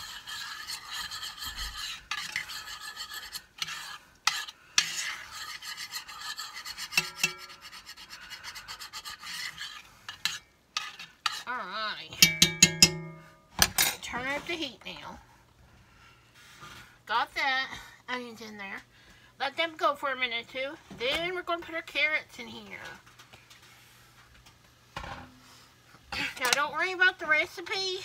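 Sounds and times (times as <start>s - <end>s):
metal spoon scraping a pot: 0.0s - 14.6s, 26.2s - 26.7s
spoon clinking on pot rim: 12.2s - 13.3s.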